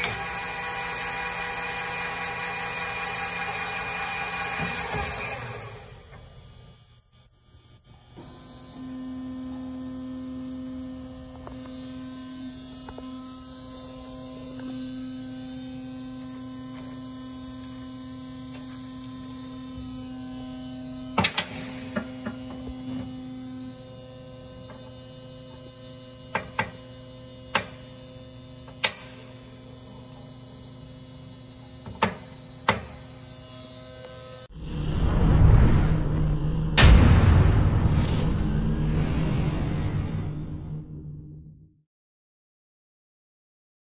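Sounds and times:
bandsaw humming: 0.0s - 6.1s.

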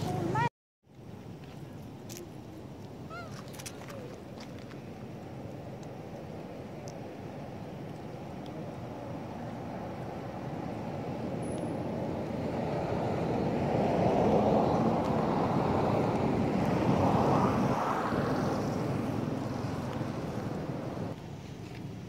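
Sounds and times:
vehicle passing by: 8.6s - 21.8s.

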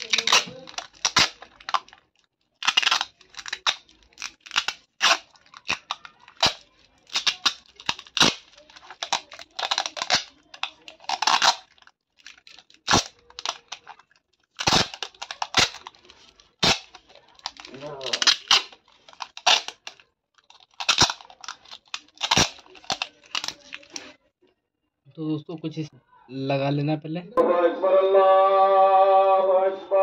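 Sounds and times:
packing tape pulled off roll: 0.0s - 2.0s, 2.6s - 24.1s.

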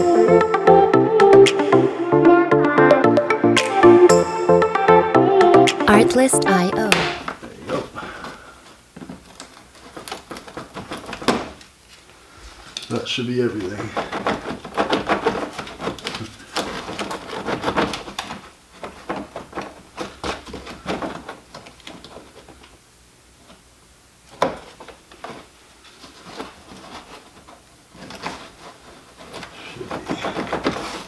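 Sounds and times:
sharp knock: 6.9s - 7.3s.

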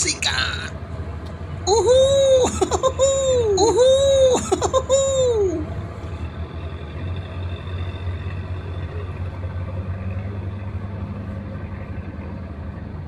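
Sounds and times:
low engine rumble: 0.0s - 13.0s
higher hum: 1.6s - 5.8s.

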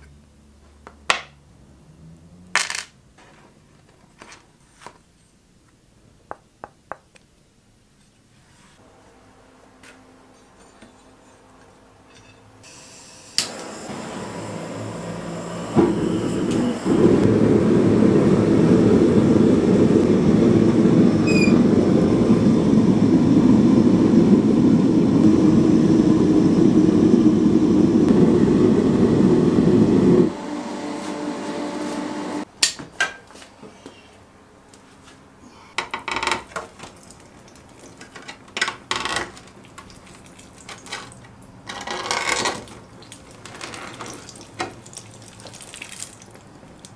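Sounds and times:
gas forge burner roaring: 12.6s - 32.5s.

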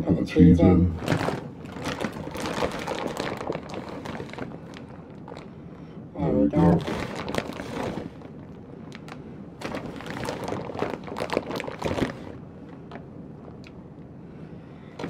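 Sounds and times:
food rustling on counter: 1.0s - 5.5s, 6.7s - 13.6s.

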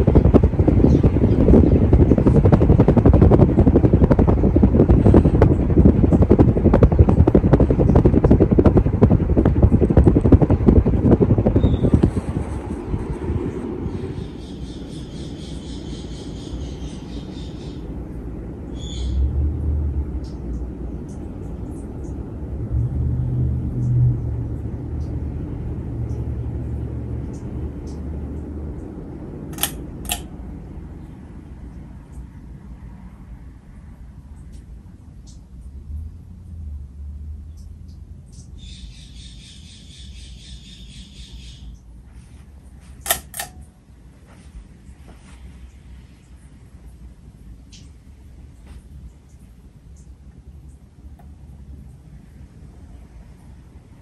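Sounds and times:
ceiling fan wind buffeting microphone: 0.0s - 54.0s
sharp clicks: 29.5s - 30.3s, 43.1s - 43.7s.

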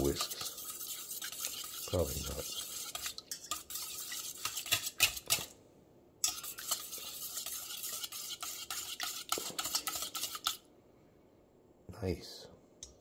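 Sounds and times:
whisk beating in metal bowl: 0.0s - 5.5s, 6.2s - 10.6s.

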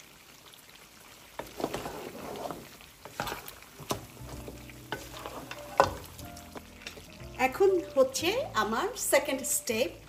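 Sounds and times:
spatula scraping a pot: 1.4s - 3.6s, 4.9s - 6.2s
spatula knocking against pot: 3.9s - 6.2s.

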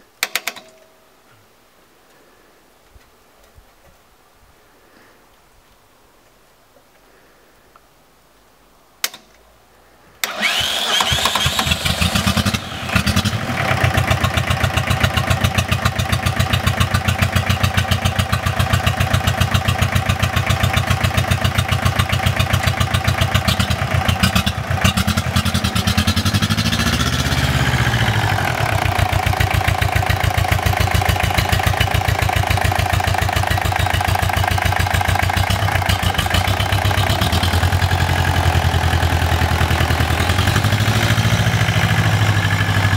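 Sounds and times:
tractor diesel engine running: 10.2s - 42.9s.

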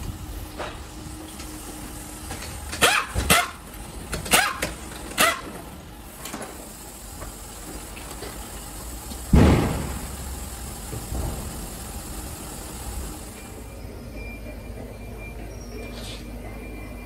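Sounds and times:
pneumatic impact wrench bursts: 2.3s - 13.6s
heavy thump of wheel: 9.2s - 12.0s.

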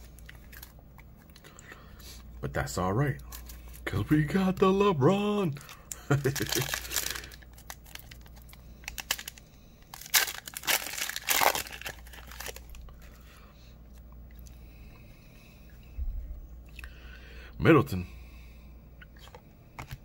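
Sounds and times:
plastic wrapper crinkling and tearing: 0.0s - 1.5s, 3.0s - 13.0s.

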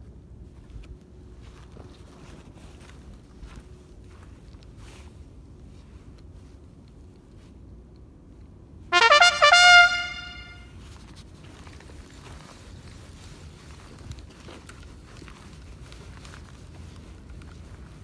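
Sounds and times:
brassy horn blast: 8.9s - 10.7s.

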